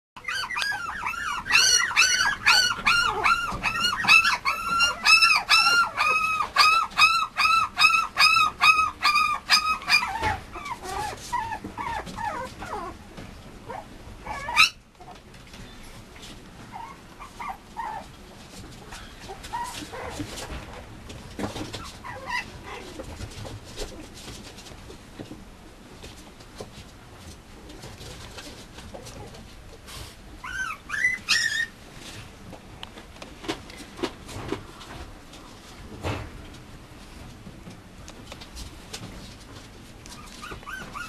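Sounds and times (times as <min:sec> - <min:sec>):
puppy whimpering: 0:00.2 - 0:13.0, 0:13.7 - 0:15.2, 0:16.6 - 0:18.1, 0:18.9 - 0:20.2, 0:21.8 - 0:23.0, 0:30.4 - 0:31.8, 0:40.1 - 0:41.0.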